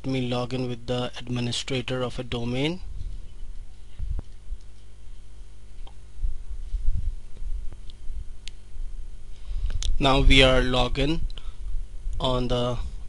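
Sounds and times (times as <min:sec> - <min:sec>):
low hum and rumble: 0:00.0 - 0:13.0.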